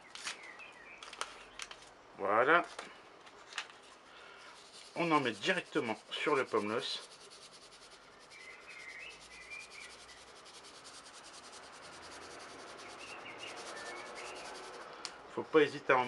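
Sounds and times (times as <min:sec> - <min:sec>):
faint outdoor hiss: 0:00.0 - 0:16.0
distant bird chirps: 0:07.8 - 0:10.5, 0:12.2 - 0:15.1.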